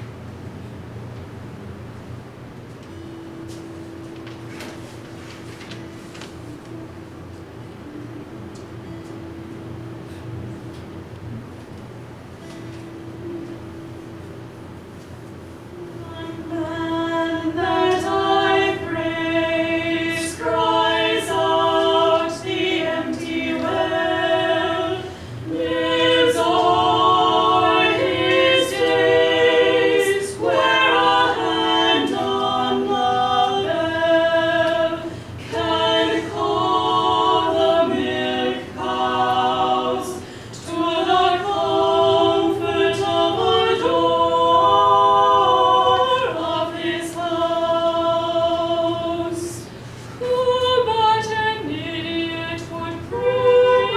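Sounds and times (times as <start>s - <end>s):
women singing unaccompanied: 15.7s - 53.9s.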